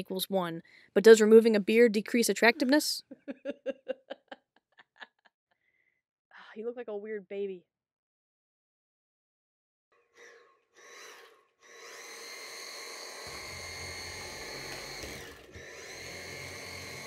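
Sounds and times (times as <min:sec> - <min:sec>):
vacuum cleaner motor whining: 0:10.2 - 0:17.0.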